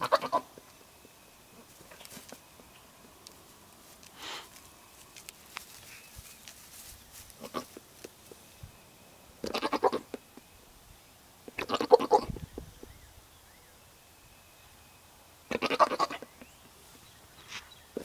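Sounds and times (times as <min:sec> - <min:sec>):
goat bleating: 0:00.0 - 0:00.5, 0:07.4 - 0:07.8, 0:09.4 - 0:10.2, 0:11.6 - 0:12.3, 0:15.5 - 0:16.2.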